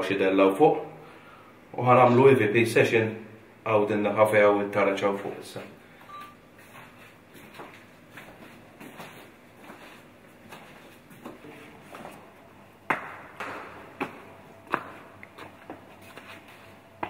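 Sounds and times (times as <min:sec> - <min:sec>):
footsteps walking: 0:06.0 - 0:17.0.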